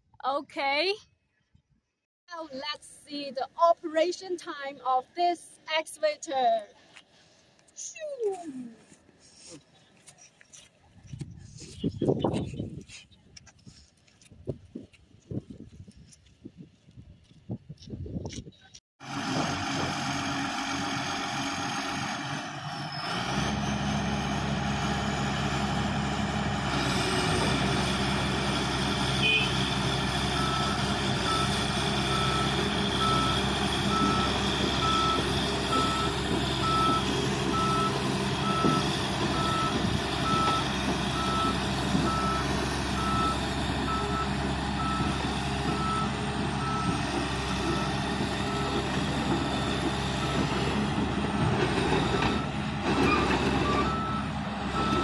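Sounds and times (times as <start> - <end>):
diesel engine running: 19.0 - 55.0
warning alarm beeps: 30.4 - 38.8.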